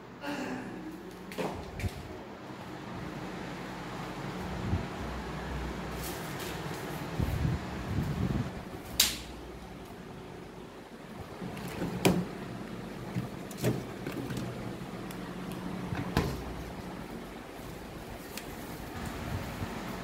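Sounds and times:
steady low hum: 0.0s - 20.0s
refrigerator door clicks and knocks: 11.6s - 12.4s, 13.1s - 14.6s.

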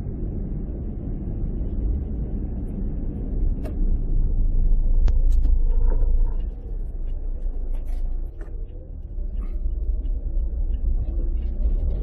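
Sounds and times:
low vehicle rumble: 0.0s - 12.0s.

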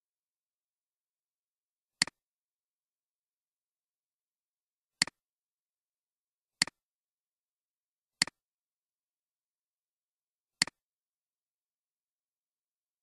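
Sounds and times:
computer mouse clicks: 2.0s - 2.2s, 10.6s - 10.8s.

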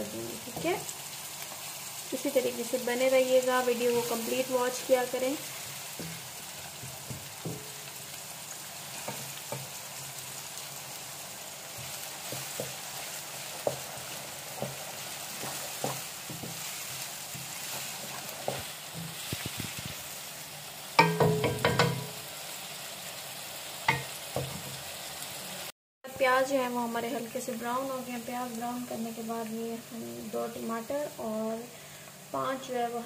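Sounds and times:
onions sizzling in hot oil: 0.0s - 33.0s
wooden spatula knocking a pan: 6.0s - 7.9s, 9.0s - 9.8s, 11.7s - 13.0s, 13.6s - 16.8s, 21.0s - 22.2s, 23.9s - 24.7s.

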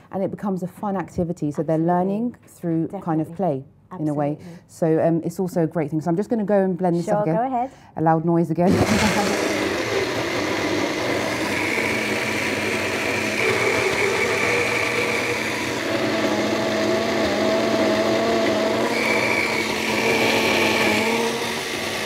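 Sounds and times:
blender running: 8.7s - 22.0s.

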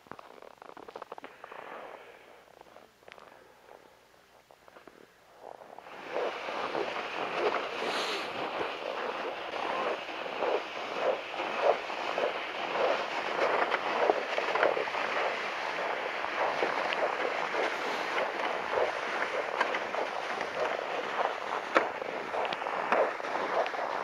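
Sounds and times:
footsteps crunching on snow: 5.8s - 24.0s
sled scraping across snow: 5.8s - 24.0s.

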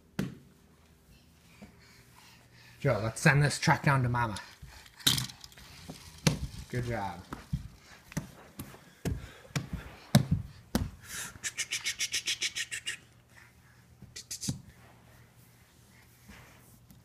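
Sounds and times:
sharp hissy pulses: 11.3s - 13.1s, 14.2s - 14.6s.

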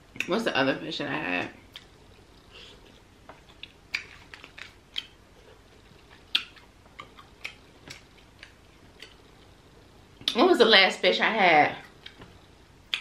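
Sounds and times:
chewing and lip smacks: 1.7s - 5.2s, 5.9s - 9.2s.

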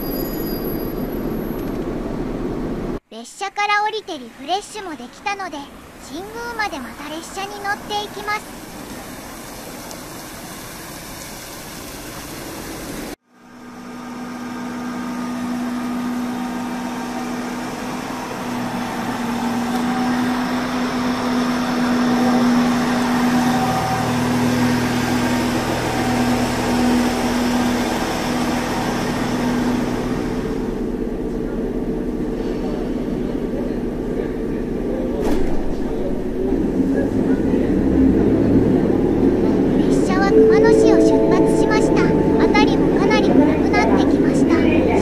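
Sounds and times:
diesel railcar idling: 3.7s - 45.0s
fountain hiss: 7.9s - 13.2s.

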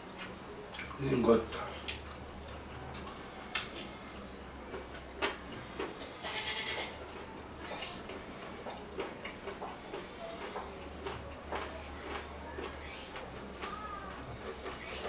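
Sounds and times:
chewing and mouth clicks: 0.2s - 6.2s
small knocks and ticks: 4.7s - 15.0s.

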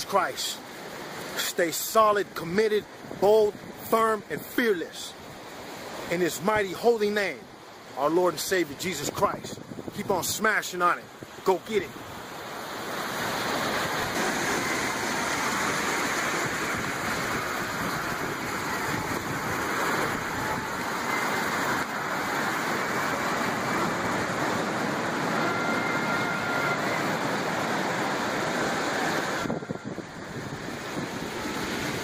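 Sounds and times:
ocean waves washing ashore: 0.0s - 32.0s.

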